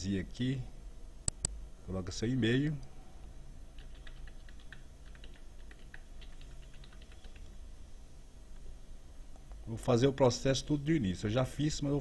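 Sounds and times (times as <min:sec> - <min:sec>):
low steady hum: 0:00.0 - 0:12.0
computer keyboard keys clicking: 0:03.8 - 0:07.5.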